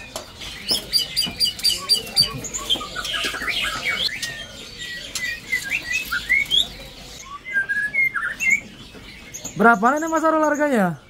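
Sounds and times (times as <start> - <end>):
bird chirping and whistling: 0.0 - 11.0.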